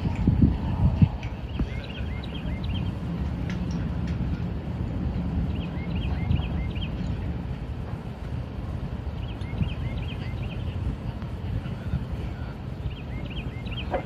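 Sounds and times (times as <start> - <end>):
steady low rumble: 0.0 - 14.0
small bird chirping: 12.9 - 14.0.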